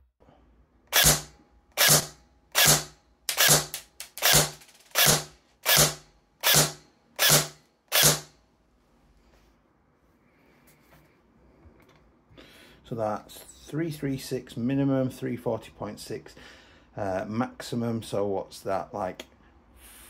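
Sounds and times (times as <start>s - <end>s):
airsoft gun firing single shots: 1.0s - 8.3s.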